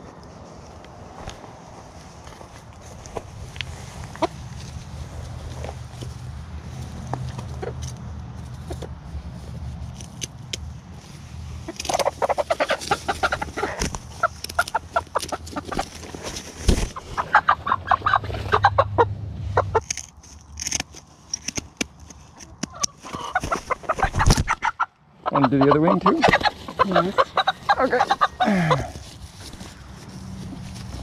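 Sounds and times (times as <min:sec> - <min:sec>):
chickens clucking: 0:03.9 - 0:04.7, 0:07.2 - 0:09.1, 0:11.6 - 0:19.9, 0:22.5 - 0:29.9.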